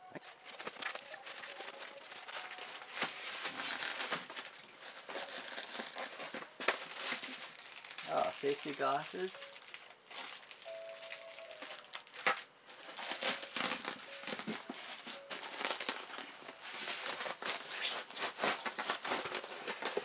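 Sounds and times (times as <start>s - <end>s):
plastic wrap crinkling: 0.2s - 20.0s.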